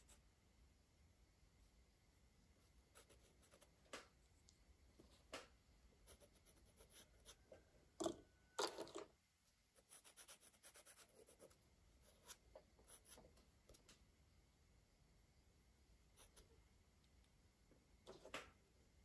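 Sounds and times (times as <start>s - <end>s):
crayon scratching on paper: 2.9s - 3.7s, 6.0s - 7.4s, 9.8s - 13.2s.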